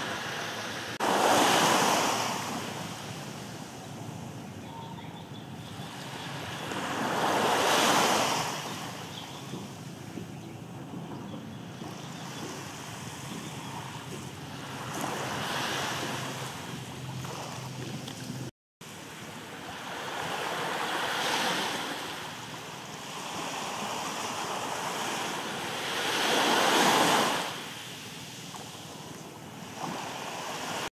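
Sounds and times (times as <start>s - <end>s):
wind on microphone: 0.0s - 18.5s
small waves washing ashore: 0.0s - 30.9s.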